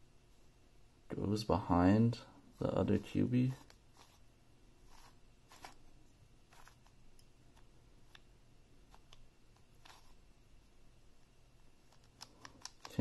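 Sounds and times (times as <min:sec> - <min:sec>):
puzzle cube layers clicking: 0:11.9 - 0:13.0.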